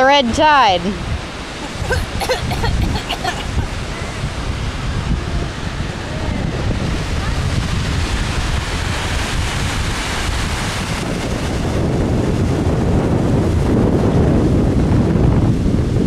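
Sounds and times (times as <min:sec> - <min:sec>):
wind buffeting microphone: 0:00.0 - 0:16.0
small surf washing on sand: 0:06.5 - 0:12.8.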